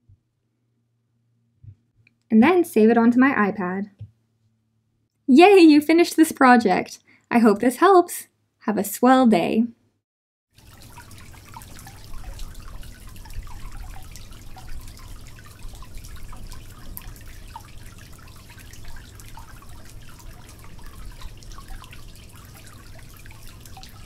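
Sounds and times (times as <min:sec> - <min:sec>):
water dripping into water: 0:10.6 - 0:24.0.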